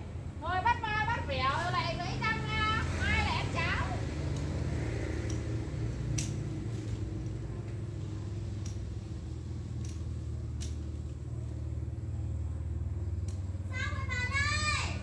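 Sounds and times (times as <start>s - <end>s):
steady low hum: 0.0s - 15.0s
pruning shears snipping twigs: 4.2s - 7.8s, 8.5s - 11.6s, 13.0s - 13.6s.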